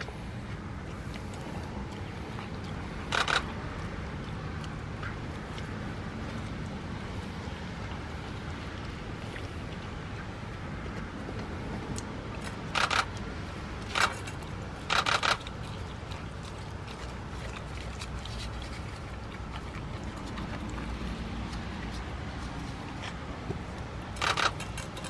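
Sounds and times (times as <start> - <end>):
steady low rumble: 0.0 - 25.0
dog chewing and tearing meat: 10.8 - 25.0.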